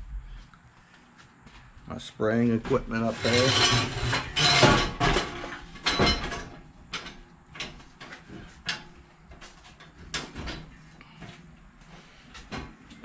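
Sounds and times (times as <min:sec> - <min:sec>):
footsteps: 0:00.0 - 0:03.4.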